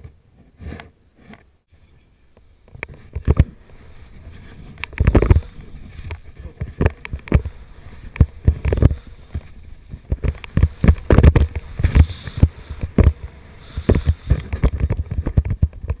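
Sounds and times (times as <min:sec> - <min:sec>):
wind buffeting microphone: 0:02.6 - 0:16.0
skis scraping through snow: 0:03.5 - 0:15.3.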